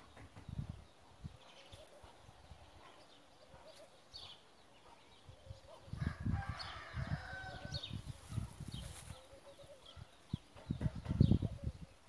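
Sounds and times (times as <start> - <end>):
small birds chirping: 0.0 - 12.0
rooster crowing: 6.0 - 7.8
low rumbling microphone bumps: 10.6 - 11.9.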